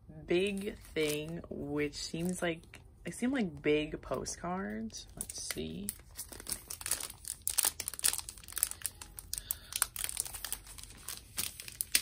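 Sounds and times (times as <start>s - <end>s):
plastic sleeve crinkling: 0.4s - 1.4s, 5.1s - 12.0s.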